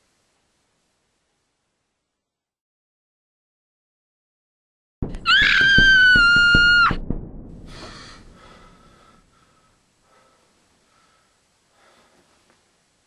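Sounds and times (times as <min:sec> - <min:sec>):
high-pitched scream: 0:05.2 - 0:07.0
breathy gasp: 0:07.7 - 0:12.2.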